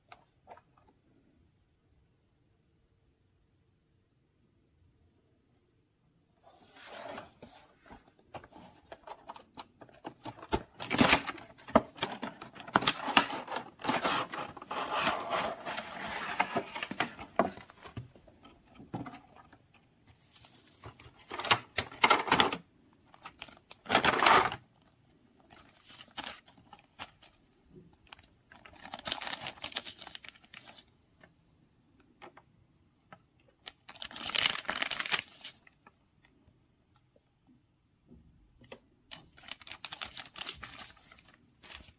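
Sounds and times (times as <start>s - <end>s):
packaging rustling and scraping: 6.4s - 18.1s.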